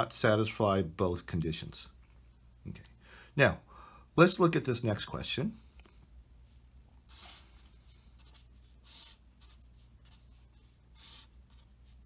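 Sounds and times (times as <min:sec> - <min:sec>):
pen scratching on paper: 0:07.1 - 0:12.0.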